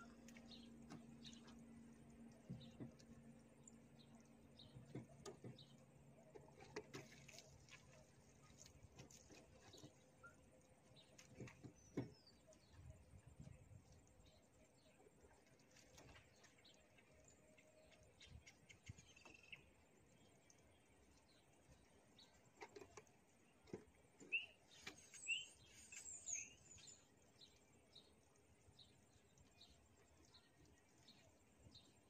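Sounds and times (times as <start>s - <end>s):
faint bird chirps: 24.2s - 27.1s.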